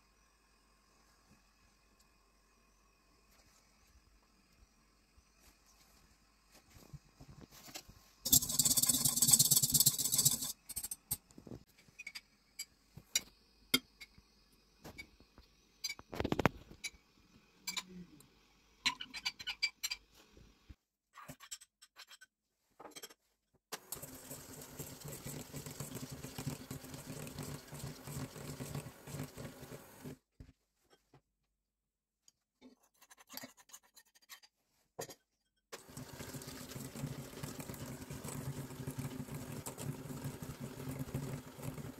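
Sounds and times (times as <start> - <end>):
whisk beating in metal bowl: 8.3 - 10.6, 23.9 - 30.2, 36.0 - 41.9.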